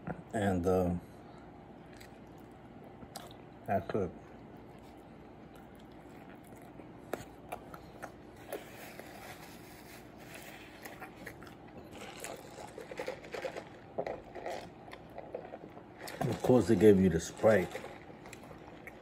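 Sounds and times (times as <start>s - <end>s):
person chewing a burger: 1.8s - 3.7s, 4.3s - 16.5s, 17.6s - 19.0s
paper wrapper crinkling: 11.8s - 19.0s.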